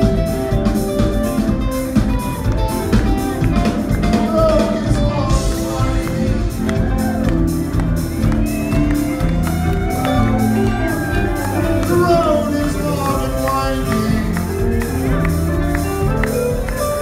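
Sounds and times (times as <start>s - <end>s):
live rock band playing: 0.0s - 17.0s
person singing: 2.6s - 15.4s.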